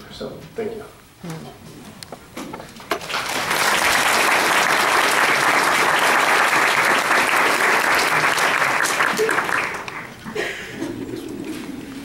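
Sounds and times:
audience applauding: 2.9s - 10.2s.

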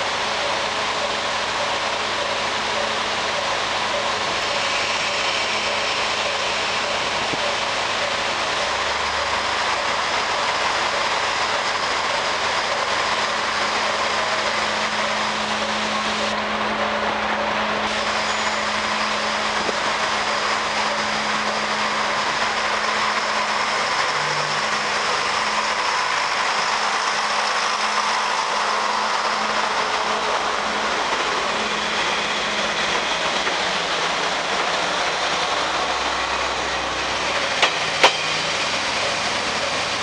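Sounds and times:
diesel railcar engine running: 0.0s - 40.0s
railcar passing by: 0.0s - 40.0s.

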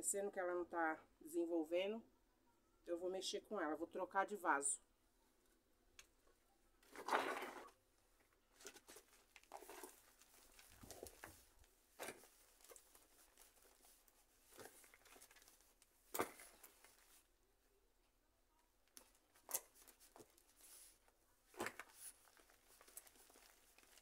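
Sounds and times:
hands rustling and crinkling: 8.2s - 17.3s, 18.9s - 24.0s.

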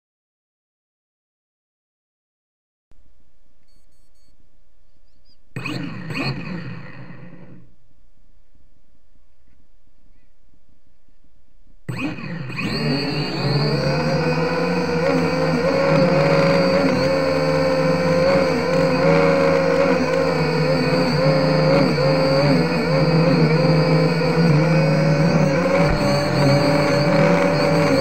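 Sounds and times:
toy drone propellers whining: 5.6s - 7.2s, 11.9s - 28.0s.

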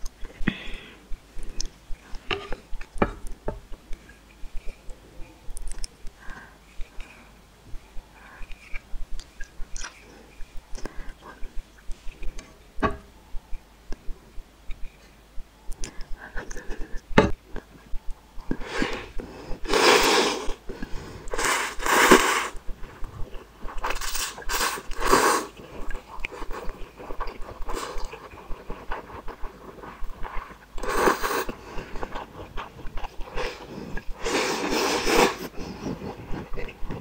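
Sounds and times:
wet chewing clicks: 8.4s - 10.0s, 31.5s - 34.2s
loud noisy eating bursts: 24.0s - 25.6s.

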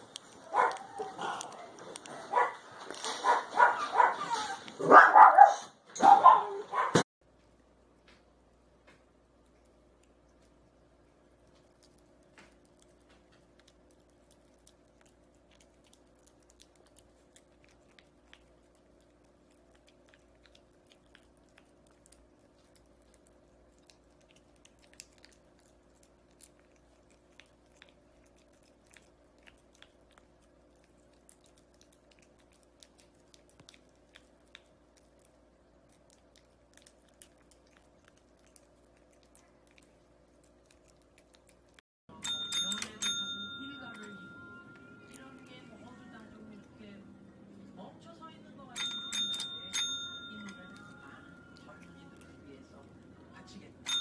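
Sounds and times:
puppy licking and chewing: 0.0s - 4.9s, 7.3s - 54.0s
steady low hum: 7.2s - 54.0s.

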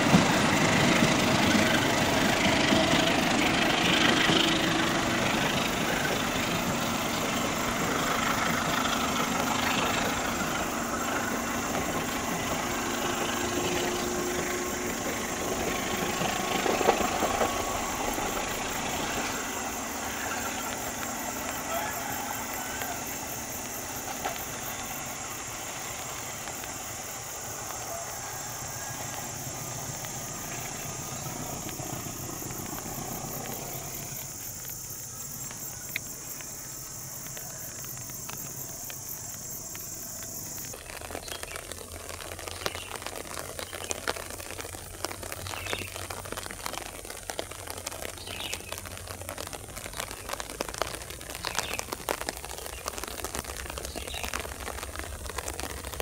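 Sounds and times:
diesel locomotive running: 0.0s - 42.3s
insects buzzing: 0.0s - 56.0s
rain drops pattering: 0.0s - 56.0s.

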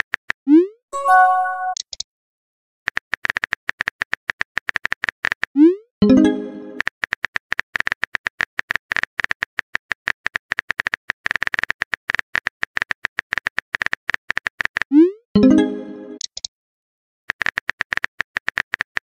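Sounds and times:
short chime: 1.0s - 1.8s.

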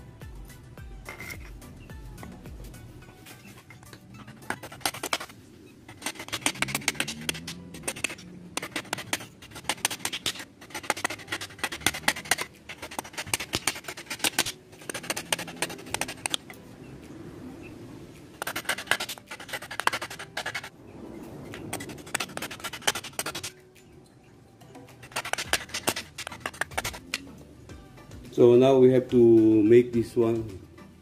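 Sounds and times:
wooden mallet striking knife: 5.9s - 16.6s, 24.9s - 27.3s
knife chopping into wood: 6.0s - 16.4s.

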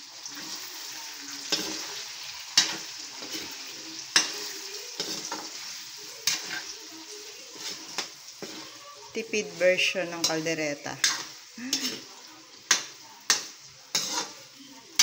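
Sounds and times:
food sizzling in a wok: 0.0s - 15.0s.

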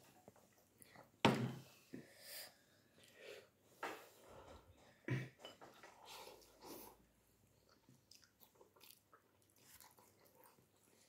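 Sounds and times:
noodles slurped and chewed: 5.9s - 11.0s.

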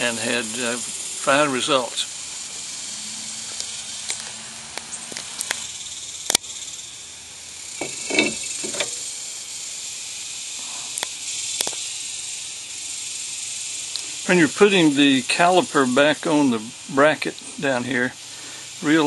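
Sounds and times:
steady high hiss: 0.0s - 19.0s
metallic clicks and knocks: 7.8s - 9.0s.

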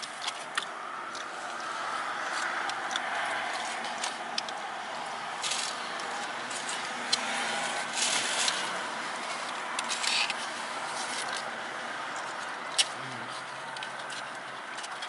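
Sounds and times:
foil wrappers crinkling: 5.4s - 11.5s.

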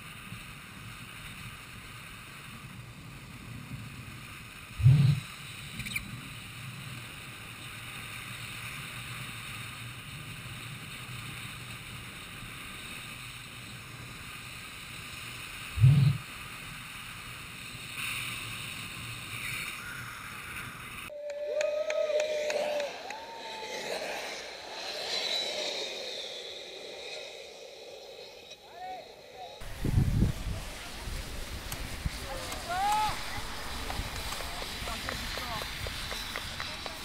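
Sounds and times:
skate wheels on asphalt: 0.0s - 21.2s, 22.2s - 37.0s
wind rushing on microphone: 0.2s - 12.6s, 15.6s - 16.4s, 29.6s - 37.0s
gliding tone: 15.8s - 16.2s, 23.2s - 37.0s.

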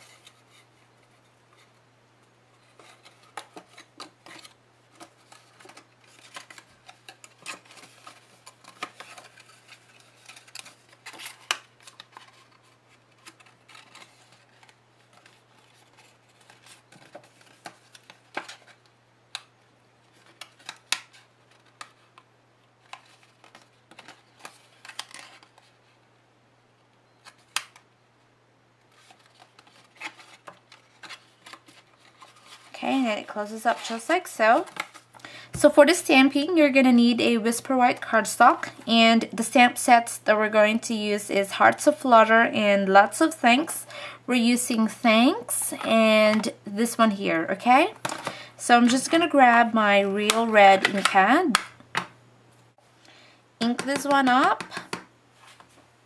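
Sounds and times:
low electrical hum: 0.0s - 56.0s
cardstock rustling and creasing: 2.6s - 25.9s, 28.9s - 35.2s.

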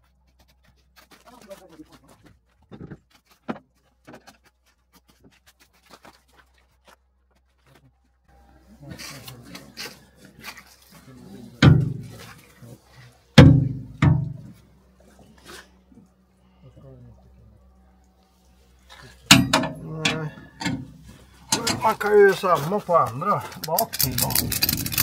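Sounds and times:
heavy thumps: 13.4s - 14.6s
rustling: 20.9s - 25.0s.

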